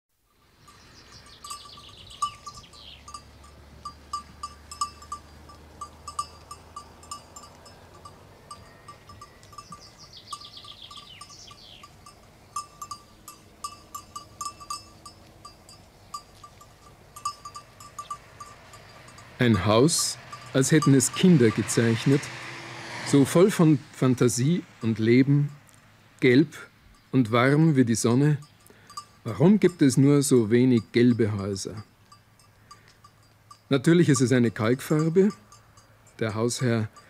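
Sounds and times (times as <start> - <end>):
cowbells clanking: 0.3 - 23.6, 24.3 - 25.8, 26.6 - 37.0
songbird trilling: 0.6 - 3.5, 7.6 - 15.2, 17.1 - 20.6.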